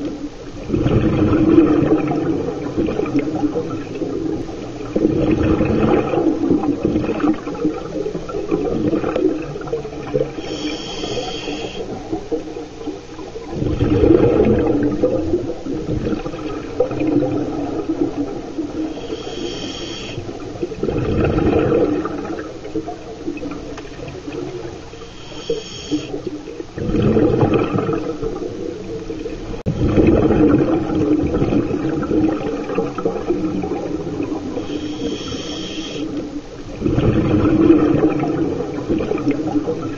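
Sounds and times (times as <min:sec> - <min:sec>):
rush of exhaled bubbles: 0:00.0 - 0:39.9
whistling regulator inhale hiss: 0:10.4 - 0:11.9, 0:19.0 - 0:20.2, 0:24.9 - 0:26.2, 0:34.6 - 0:36.1.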